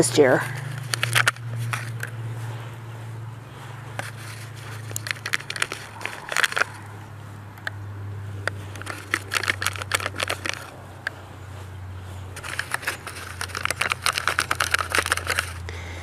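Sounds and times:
steady low hum: 0:00.0 - 0:16.0
plastic tray crinkling and crackling: 0:00.7 - 0:02.1, 0:04.0 - 0:06.9, 0:08.4 - 0:10.8, 0:12.4 - 0:15.7.

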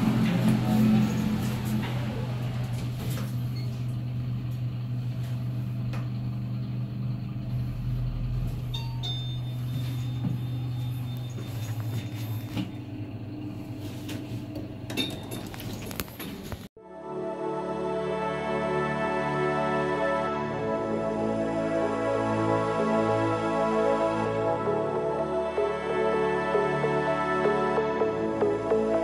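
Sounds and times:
sliding doors clattering open: 0:00.0 - 0:03.9
elevator car humming: 0:00.0 - 0:16.7.

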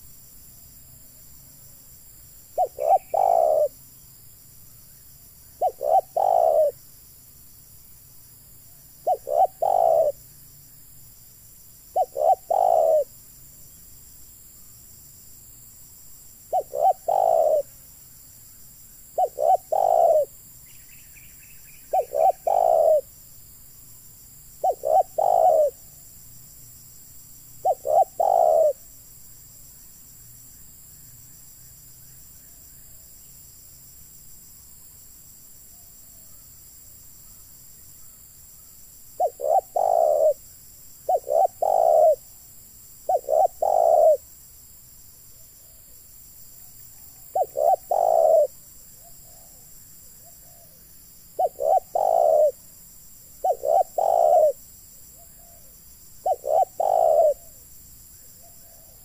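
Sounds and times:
dove cooing: 0:02.6 - 0:03.7, 0:05.6 - 0:06.8, 0:09.0 - 0:10.2, 0:11.9 - 0:13.1, 0:16.5 - 0:17.7, 0:19.2 - 0:20.3, 0:21.9 - 0:23.1, 0:24.6 - 0:25.9, 0:27.6 - 0:28.8, 0:39.2 - 0:40.4, 0:41.1 - 0:42.3, 0:43.1 - 0:44.2, 0:47.3 - 0:49.6, 0:51.4 - 0:52.6, 0:53.4 - 0:54.6, 0:55.2 - 0:57.6, 0:58.4 - 0:59.0.

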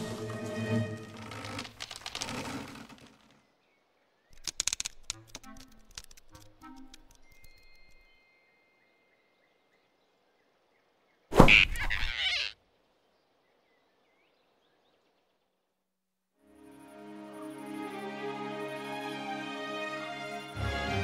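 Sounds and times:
cartoon whoosh and thump: 0:11.3 - 0:12.2.

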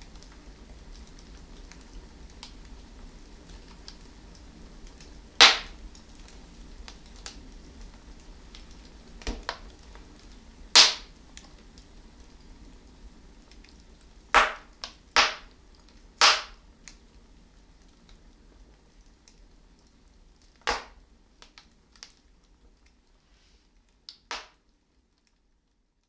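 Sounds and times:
logs crackling in fire: 0:00.0 - 0:26.0
loud sharp pops of fire: 0:04.9 - 0:07.4, 0:08.6 - 0:10.1, 0:10.7 - 0:11.6, 0:13.6 - 0:17.0, 0:20.5 - 0:22.2, 0:24.1 - 0:24.7.

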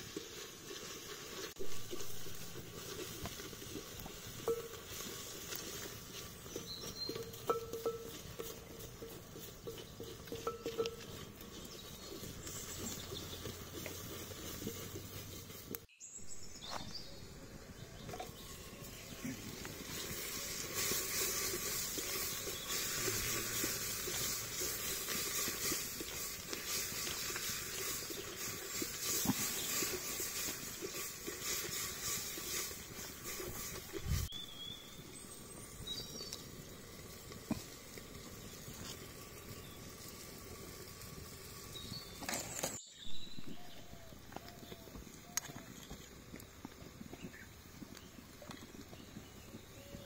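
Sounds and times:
curry simmering with a hiss: 0:00.0 - 0:16.4, 0:17.1 - 0:50.0
wooden spoon knocking pot: 0:07.1 - 0:11.3.

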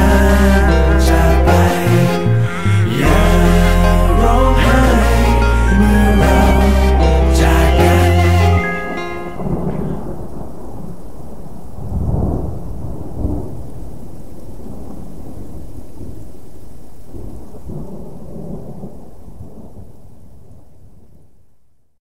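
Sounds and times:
low rolling thunder: 0:09.4 - 0:16.3
steady rain: 0:09.4 - 0:21.1.

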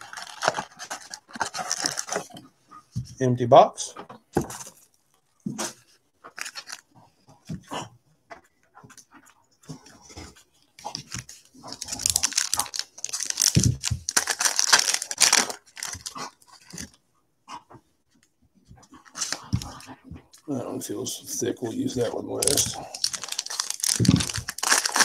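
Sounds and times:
foil wrappers crinkling: 0:00.0 - 0:02.4, 0:06.3 - 0:06.8, 0:11.0 - 0:16.9, 0:21.9 - 0:25.0.

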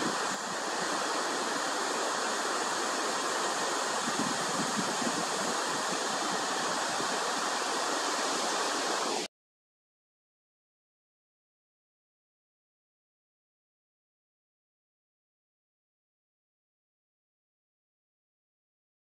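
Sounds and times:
steady rushing hiss: 0:00.0 - 0:09.3.

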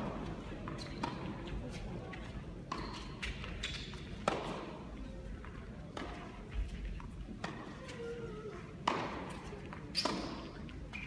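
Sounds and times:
tennis rackets striking ball: 0:04.2 - 0:04.7, 0:08.8 - 0:10.5.

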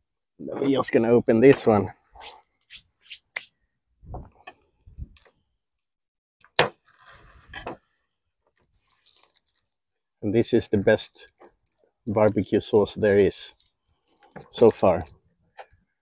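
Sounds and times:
bottle clicks and rustles: 0:08.5 - 0:12.5, 0:13.5 - 0:15.2.

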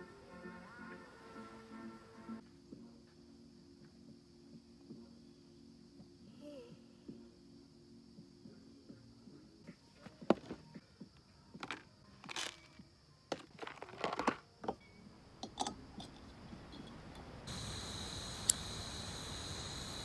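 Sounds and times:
crunchy rustles: 0:11.6 - 0:14.4
handling clicks and cracks: 0:11.6 - 0:14.4
faint high hum: 0:14.8 - 0:20.0.

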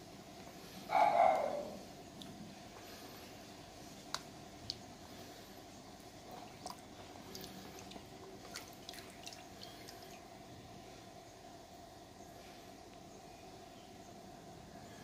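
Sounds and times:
faint steady hum: 0:00.0 - 0:15.0
water dripping and splashing: 0:06.4 - 0:10.2.

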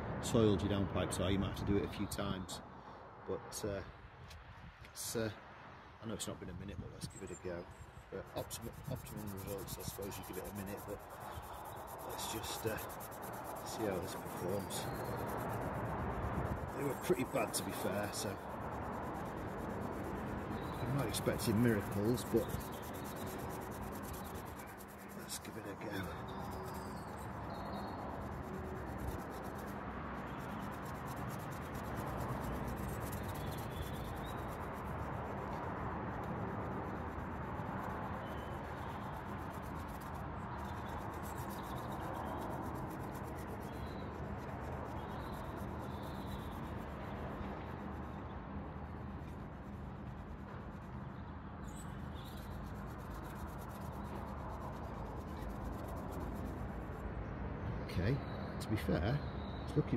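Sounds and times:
scouring pad scrubbing metal: 0:08.4 - 0:15.6, 0:20.3 - 0:26.8.

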